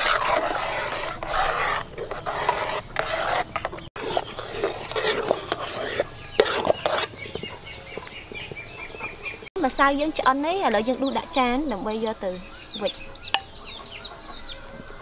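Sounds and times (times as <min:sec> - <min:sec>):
metal ladle scraping metal pot: 0:00.0 - 0:08.0.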